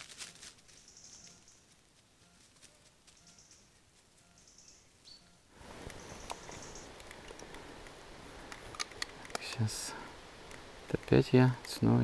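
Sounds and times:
faint high chirps: 2.2s - 6.9s.

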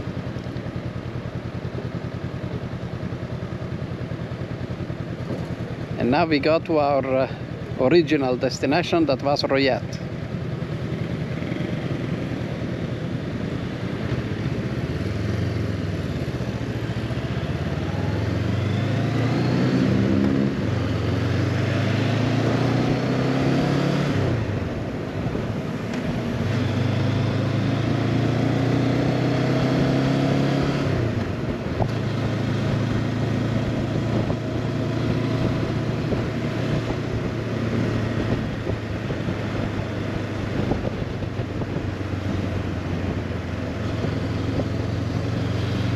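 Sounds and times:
motorcycle engine accelerating: 10.0s - 45.9s.

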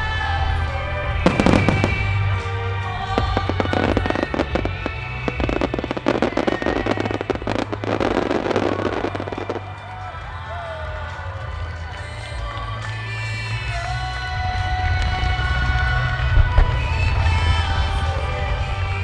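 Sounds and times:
music: 0.0s - 19.0s
rapid crackling of fireworks: 0.0s - 19.0s
fireworks burst: 1.2s - 10.1s.

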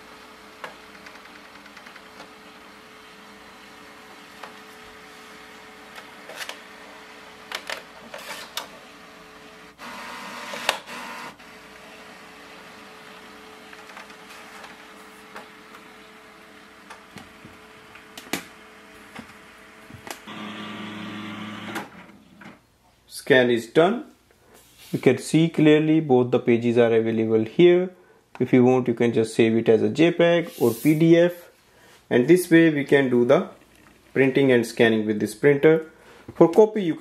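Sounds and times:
document feeder humming: 0.0s - 22.6s
motor noise: 3.6s - 22.4s.

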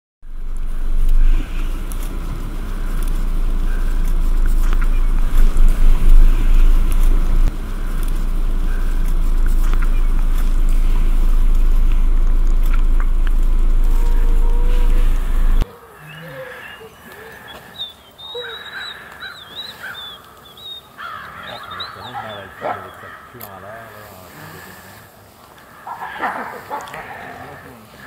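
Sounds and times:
low vehicle rumble: 0.2s - 28.0s
wind noise on microphone: 0.3s - 15.6s.

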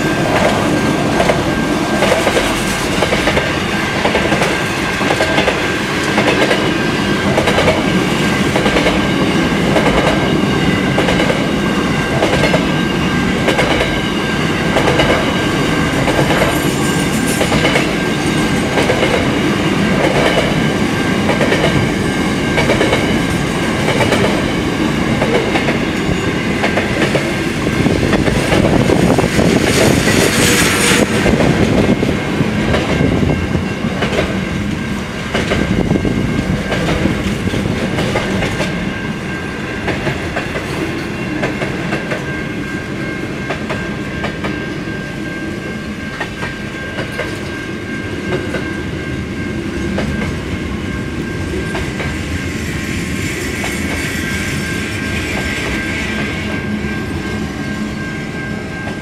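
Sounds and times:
freight train wheels rumbling: 0.0s - 59.0s
clickety-clack of wheels: 0.2s - 1.4s, 2.0s - 10.3s, 10.9s - 11.5s, 12.1s - 12.8s, 13.5s - 14.1s, 14.7s - 27.4s, 32.7s - 34.4s, 35.3s - 38.8s, 39.8s - 42.3s, 46.1s - 47.5s, 49.9s - 50.4s.

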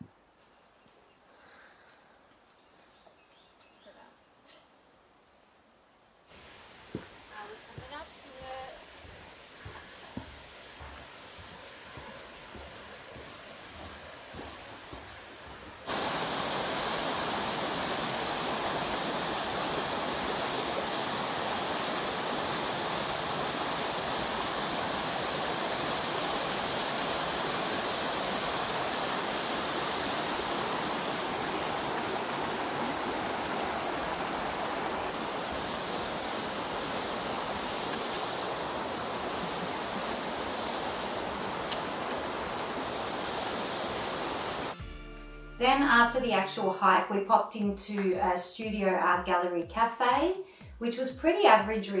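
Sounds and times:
waterfall rushing over rocks: 10.6s - 44.8s.

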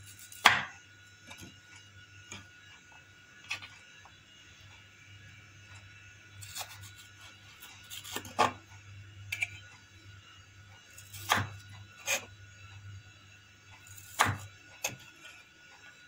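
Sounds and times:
knife chopping on wooden board: 0.3s - 0.7s, 11.1s - 12.2s, 14.0s - 15.0s.

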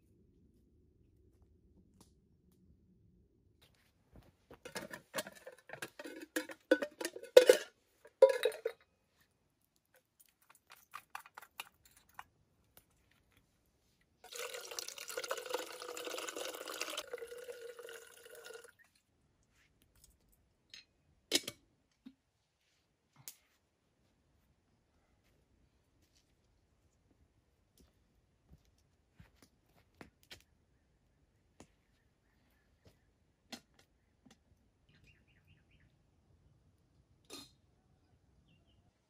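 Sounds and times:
metal kettle clinking: 4.7s - 8.8s
water pouring into metal pot: 14.2s - 18.9s.

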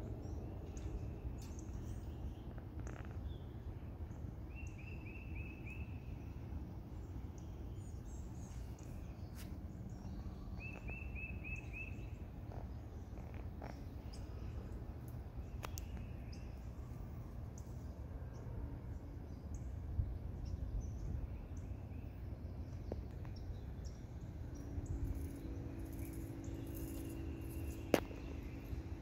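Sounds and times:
low outdoor rumble: 0.0s - 29.0s
faint bird chirps: 7.4s - 14.8s.

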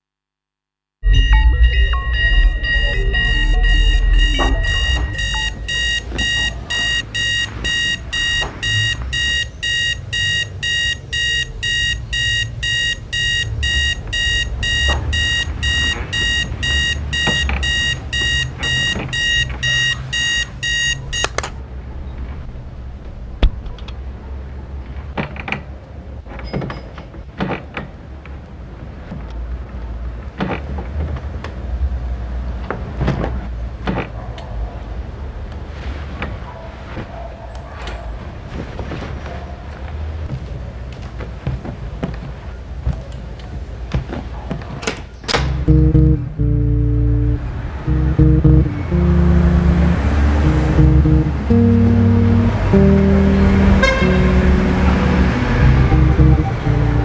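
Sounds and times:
low hum: 1.0s - 5.6s, 45.4s - 57.0s
electronic alarm clock beeping: 1.1s - 21.3s, 45.4s - 51.8s, 55.2s - 57.0s.

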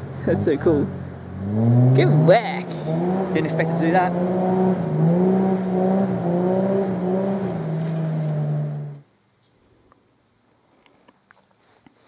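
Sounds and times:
car engine running under load: 0.0s - 9.0s.

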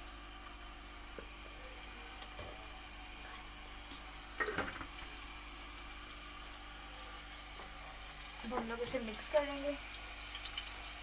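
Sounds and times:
paste sizzling in hot oil: 0.0s - 11.0s.

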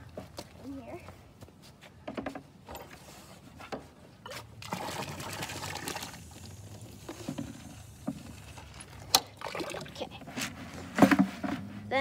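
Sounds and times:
water pouring into plastic bucket: 4.6s - 10.1s.

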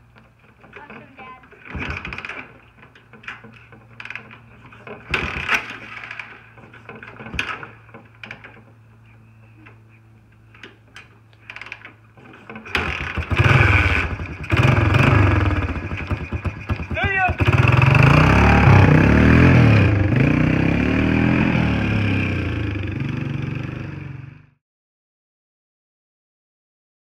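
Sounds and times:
atv engine revving: 12.2s - 24.5s.

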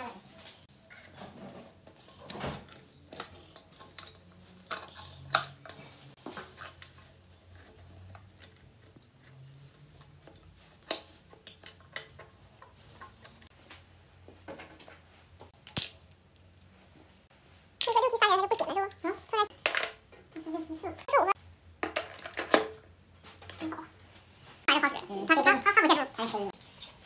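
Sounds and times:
metal chain clinking and rattling: 0.8s - 13.5s.

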